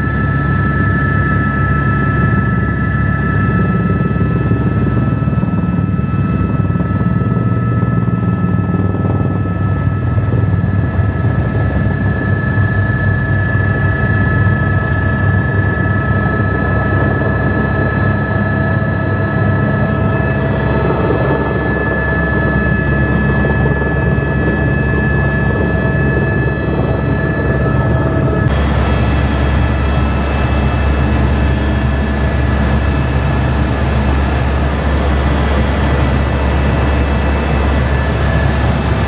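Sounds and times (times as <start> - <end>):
helicopter rotor noise: 0.0 - 39.0
helicopter turbine whine: 0.0 - 39.0.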